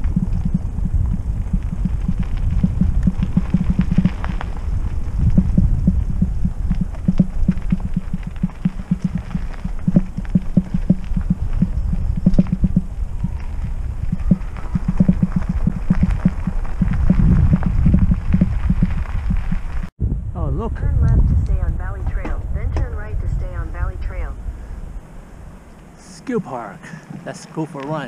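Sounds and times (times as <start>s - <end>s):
bike thumps and rattles: 0.0s - 19.9s
mountain bike rumbling on dirt trail: 0.0s - 19.9s.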